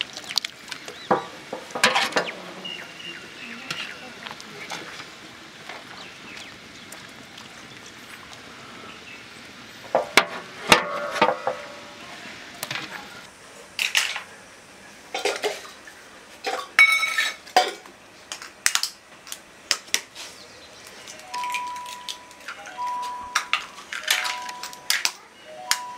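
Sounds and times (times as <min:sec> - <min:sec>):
metal utensils and cookware clinking: 0:01.1 - 0:02.4, 0:10.0 - 0:11.8, 0:15.1 - 0:15.7, 0:16.4 - 0:17.9, 0:21.1 - 0:25.9.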